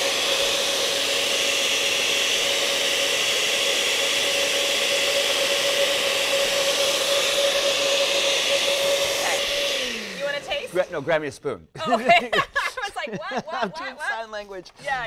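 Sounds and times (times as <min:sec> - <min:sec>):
blender motor whine: 0:00.0 - 0:11.0.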